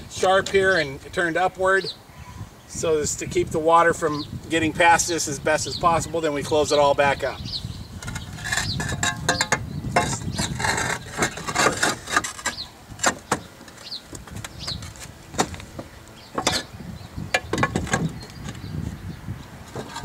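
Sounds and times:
bird chirps: 7.1s - 10.6s, 12.4s - 14.9s
roof tiles clacking and scraping: 8.0s - 16.7s, 17.3s - 18.6s, 19.7s - 20.0s.

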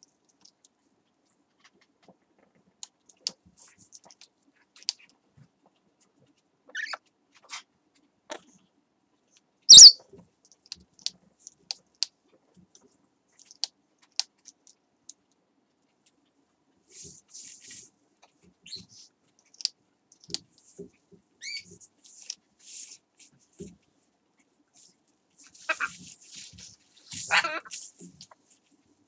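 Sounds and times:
parrot clicks and chirps: 9.7s - 10.0s
parrot squawk: 9.7s - 10.0s.

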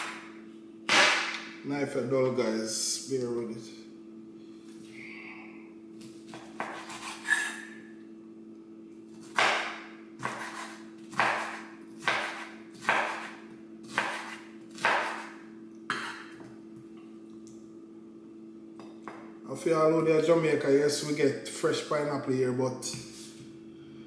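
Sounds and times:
knife chopping on wooden board: 6.3s - 7.3s, 9.2s - 16.3s.

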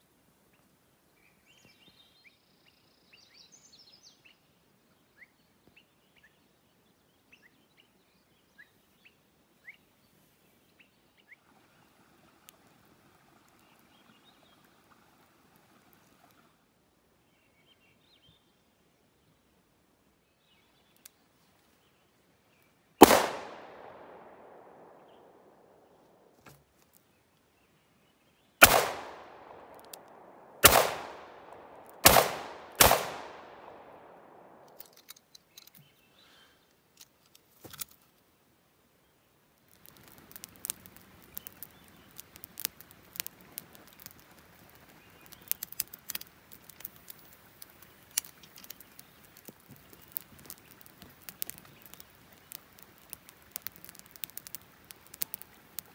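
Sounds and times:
revolver shots echoing: 23.0s - 25.9s, 28.6s - 34.7s
campfire crackling and popping: 23.0s - 27.0s, 28.6s - 35.1s, 39.6s - 55.9s.

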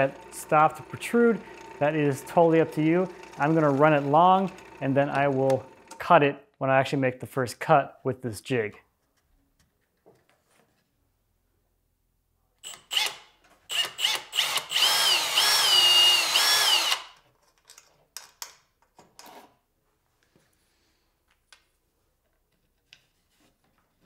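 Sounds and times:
cordless drill whining: 0.0s - 6.0s, 12.6s - 17.2s.

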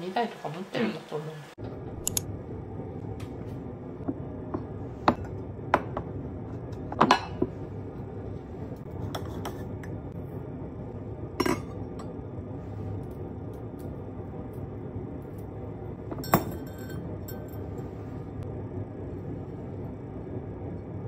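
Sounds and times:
tableware clinking and knocking: 6.9s - 7.5s, 16.1s - 17.8s.

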